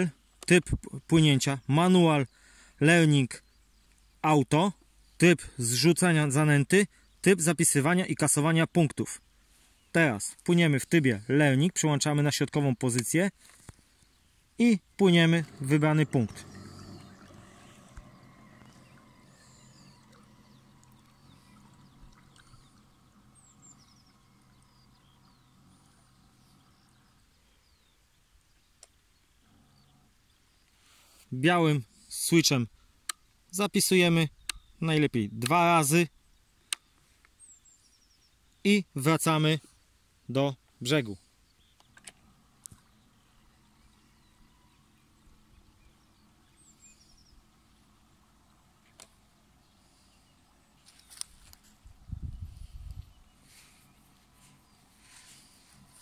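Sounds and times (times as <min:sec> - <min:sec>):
faint outdoor ambience: 0:00.0 - 0:56.0
small birds chirping: 0:00.0 - 0:56.0
faint low hum: 0:10.1 - 0:30.7, 0:41.4 - 0:56.0
small click: 0:34.4 - 0:34.6, 0:41.8 - 0:42.9.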